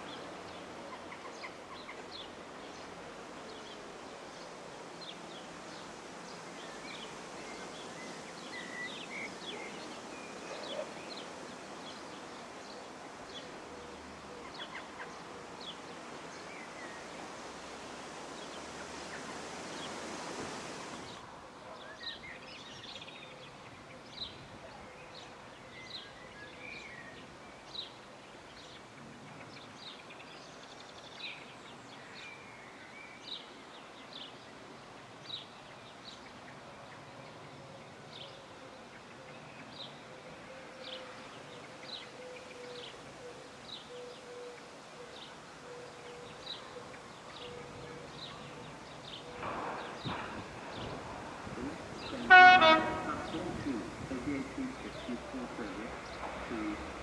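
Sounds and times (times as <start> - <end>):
small birds chirping: 0.0 - 57.0
steady background noise: 0.0 - 57.0.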